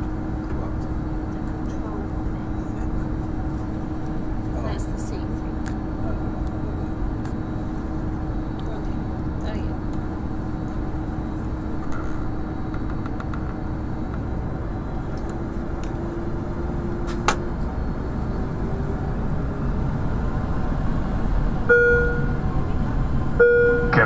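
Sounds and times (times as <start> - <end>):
airliner engine and air rush: 0.0 - 24.0
steady whine: 0.0 - 24.0.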